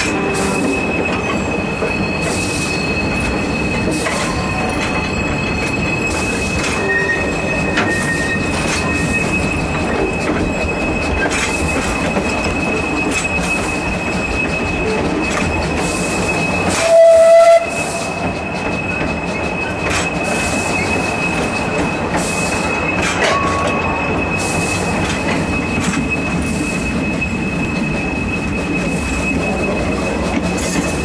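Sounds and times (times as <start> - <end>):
train wheels rumbling on rail: 0.0 - 31.0
high squeal: 0.1 - 31.0
steam locomotive whistle blast: 16.6 - 18.4.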